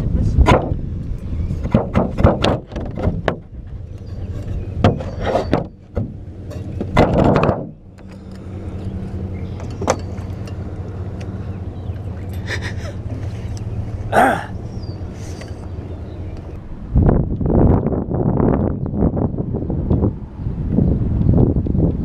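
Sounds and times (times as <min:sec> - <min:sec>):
boat motor humming: 0:00.1 - 0:22.0.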